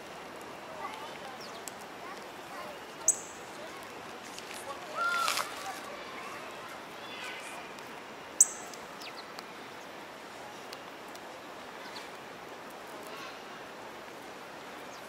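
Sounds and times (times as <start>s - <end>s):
city background hiss: 0.0s - 15.0s
sparrows chirping: 1.2s - 1.7s, 2.6s - 3.8s, 8.4s - 9.9s, 11.8s - 12.2s.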